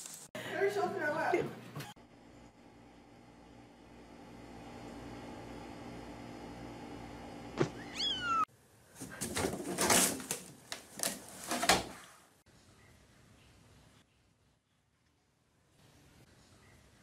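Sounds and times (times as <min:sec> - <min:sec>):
kitten meowing: 0:07.6 - 0:08.5
cat scrambling into a hamper: 0:09.0 - 0:12.1.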